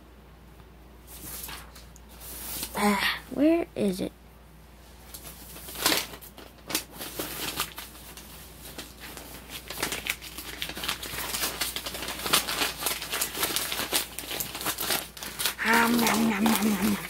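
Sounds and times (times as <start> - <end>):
rustling and crinkling: 1.0 - 2.8, 4.9 - 17.0.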